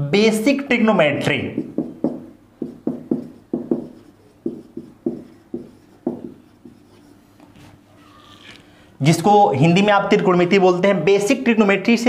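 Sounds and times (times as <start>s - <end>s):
marker writing on whiteboard: 1.2s - 8.6s.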